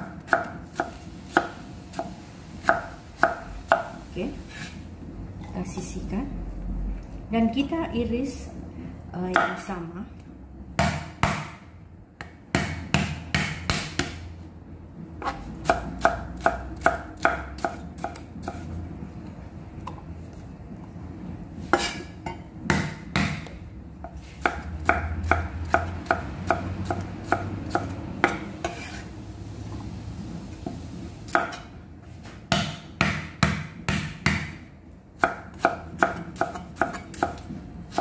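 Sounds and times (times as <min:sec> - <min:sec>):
cleaver chopping on wooden block: 0:10.8 - 0:11.6, 0:32.5 - 0:34.5.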